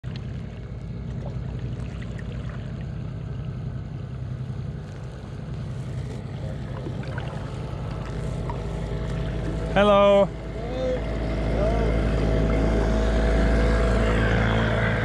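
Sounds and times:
boat motor humming: 0:00.0 - 0:15.0.

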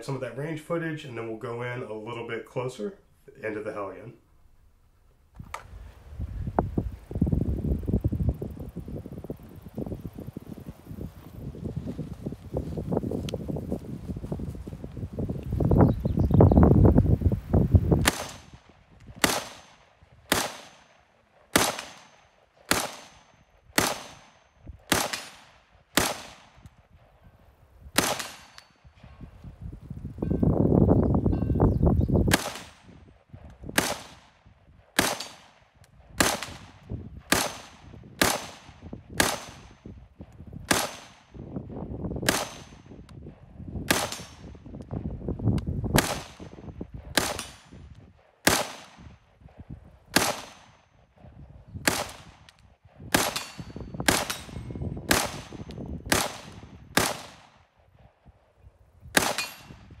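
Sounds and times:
rifle gunshots: 0:18.0 - 0:26.6, 0:28.0 - 0:28.8, 0:32.3 - 0:32.9, 0:33.7 - 0:39.8, 0:40.7 - 0:41.4, 0:42.2 - 0:42.9, 0:43.9 - 0:44.6, 0:45.9 - 0:47.8, 0:48.4 - 0:49.1, 0:50.1 - 0:50.8, 0:51.8 - 0:52.5, 0:53.1 - 0:57.7, 0:59.2 - 0:59.9.

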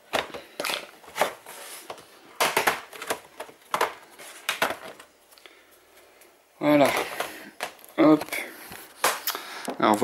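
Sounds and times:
plastic cover clicking and knocking: 0:02.4 - 0:05.1.

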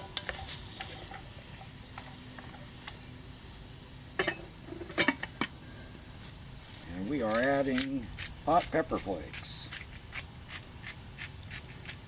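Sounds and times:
steady high-pitched hiss: 0:00.0 - 0:12.0
utensils clinking on cast iron pots: 0:04.2 - 0:05.3.

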